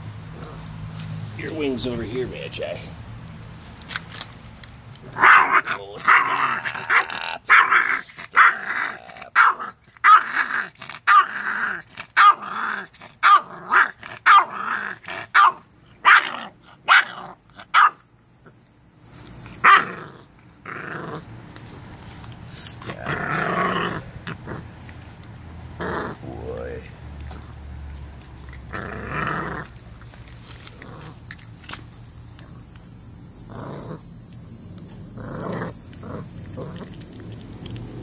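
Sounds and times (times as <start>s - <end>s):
puppy growling: 0.3s - 0.7s, 5.0s - 17.6s, 19.6s - 21.3s, 22.6s - 24.8s, 25.7s - 27.6s, 28.4s - 29.8s, 30.5s - 31.4s, 33.5s - 34.0s, 35.0s - 38.0s.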